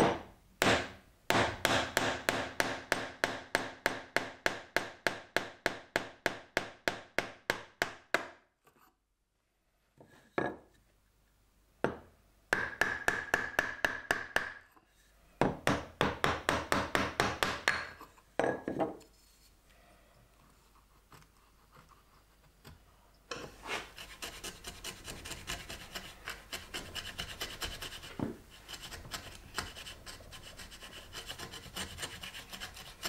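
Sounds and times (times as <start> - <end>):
wooden mallet striking chisel: 0.0 - 8.4, 11.8 - 14.7, 15.4 - 19.0.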